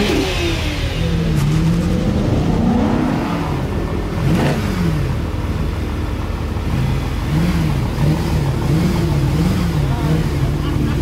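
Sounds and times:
car engine rev blips: 0.0s - 11.0s.

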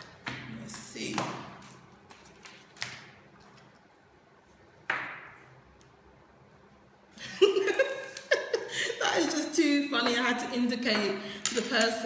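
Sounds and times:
woman chuckling: 7.2s - 9.3s.

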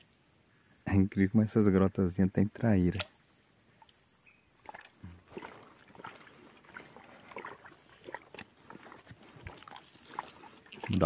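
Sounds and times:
faint high insect buzz: 0.0s - 7.1s
footsteps crunching on stony dirt: 5.3s - 11.0s.

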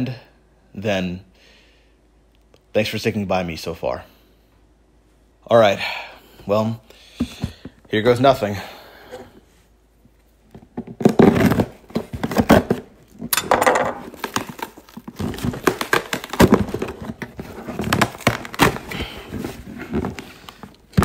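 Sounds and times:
cardboard rustling and knocks: 7.2s - 7.8s, 10.5s - 21.0s
duct tape ripping: 11.0s - 12.9s, 14.1s - 17.0s.

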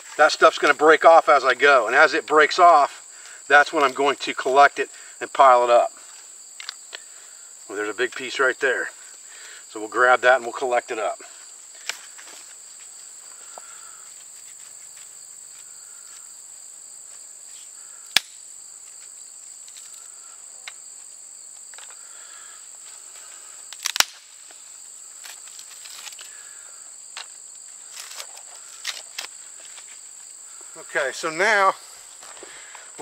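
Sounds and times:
insects buzzing: 0.0s - 33.0s
branch snapping: 18.1s - 18.4s, 23.7s - 24.4s
bark stripping rustles: 23.2s - 26.5s, 27.7s - 30.2s.

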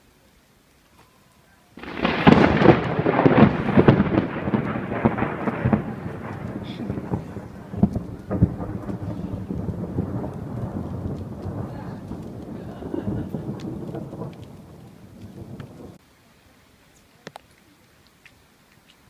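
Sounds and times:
rolling thunder rumble: 1.8s - 16.0s
thunderclap: 1.8s - 16.0s.

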